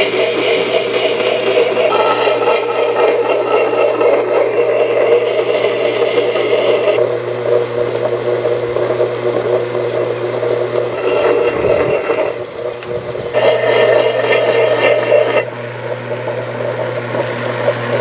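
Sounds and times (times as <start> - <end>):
steel grinding on stone: 0.0 - 7.0, 10.6 - 15.5
grinder motor hum: 0.0 - 18.0.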